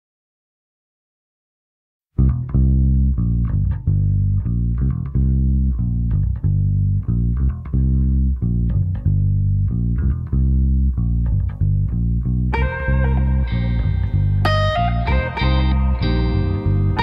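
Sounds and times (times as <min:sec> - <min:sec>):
electric bass guitar blues line: 0:02.2 - 0:17.0
electric guitar held notes: 0:12.5 - 0:17.0.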